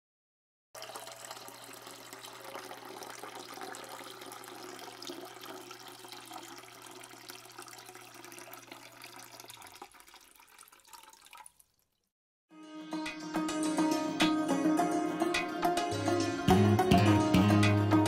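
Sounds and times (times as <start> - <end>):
water pouring into plastic bottles: 0.8 - 12.1.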